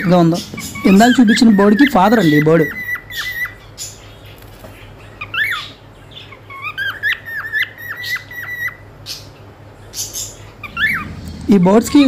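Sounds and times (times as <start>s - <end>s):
cockatiel whistling: 0.0s - 3.6s, 6.5s - 8.8s, 10.6s - 11.1s.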